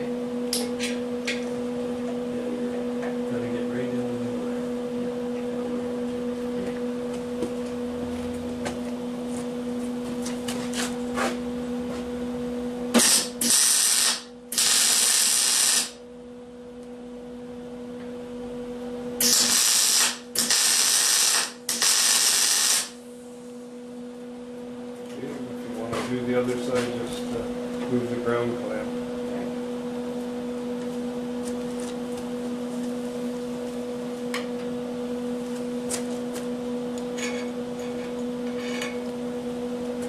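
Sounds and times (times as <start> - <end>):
steady electrical hum: 0.0 - 40.0
arc welding sizzle: 13.0 - 16.0, 19.2 - 23.0.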